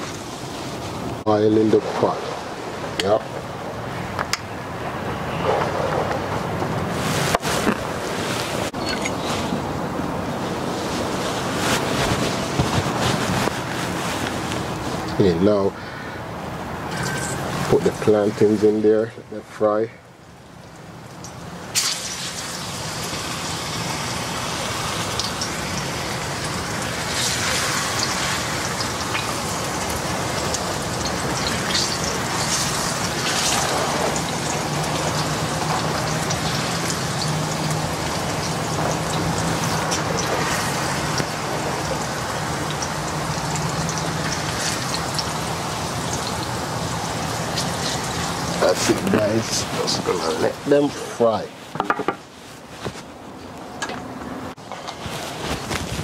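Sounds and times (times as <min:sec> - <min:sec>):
plantain slices sizzling in oil: 0:20.4 - 0:51.5.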